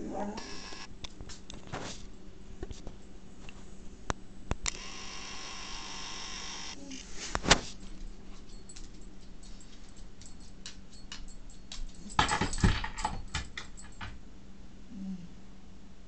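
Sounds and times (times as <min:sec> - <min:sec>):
dog claws clicking on hard floor: 0:01.1 - 0:01.9, 0:07.4 - 0:14.2
collar tags jangling: 0:07.8 - 0:14.2.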